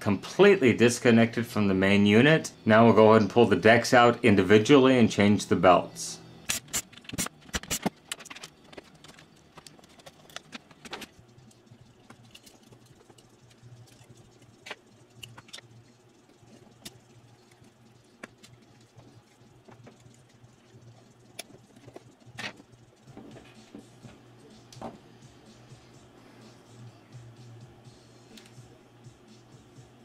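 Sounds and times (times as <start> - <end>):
plastic parts and screws clicking: 6.5 - 15.7.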